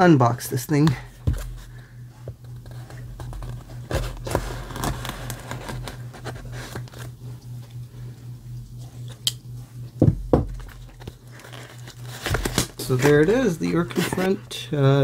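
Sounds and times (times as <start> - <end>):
low steady hum: 0.0 - 15.0
packing tape slit and peeled: 3.9 - 7.0, 11.3 - 13.1.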